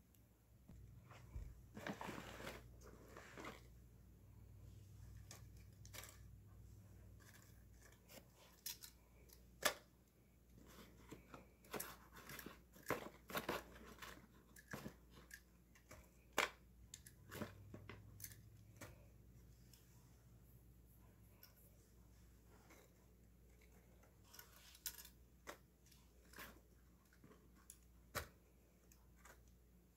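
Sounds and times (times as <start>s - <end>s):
paper rustling: 1.1s - 3.7s.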